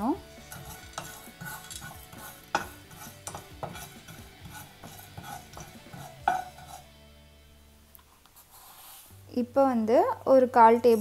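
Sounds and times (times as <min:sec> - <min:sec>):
wooden spatula scraping pan: 0:00.3 - 0:07.0
spatula knocking against pan: 0:00.6 - 0:06.8.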